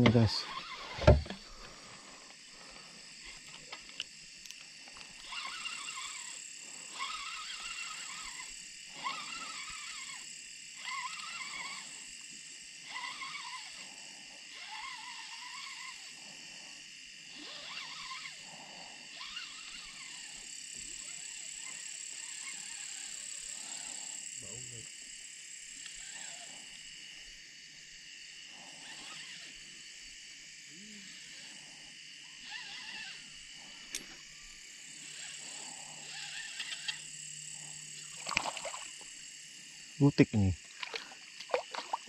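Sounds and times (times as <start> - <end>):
frogs croaking: 35.0 - 42.0.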